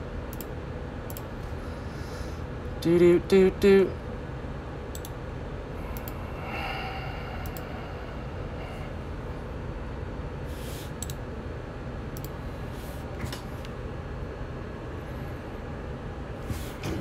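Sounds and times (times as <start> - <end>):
low background hum: 0.0 - 17.0
short breath: 5.8 - 9.0.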